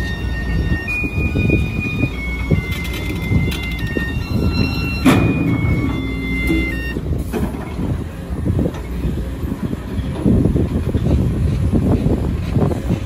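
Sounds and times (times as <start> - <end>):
high squealing tones: 0.0 - 7.1
excavator diesel engine under load: 0.0 - 13.0.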